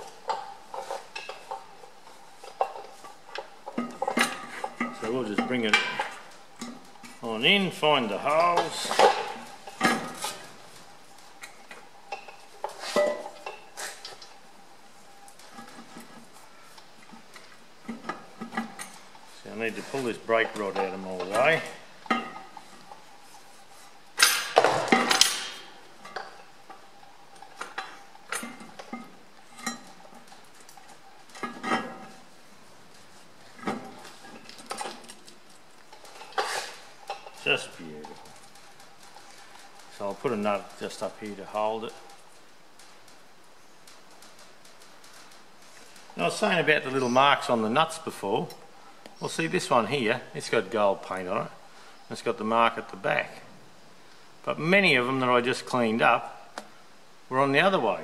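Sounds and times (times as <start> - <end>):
metal clunks and clinks: 2.4 - 7.2, 12.1 - 14.0, 20.4 - 22.6, 24.2 - 26.5
metal clinks and knocks: 20.3 - 23.1, 24.1 - 32.2.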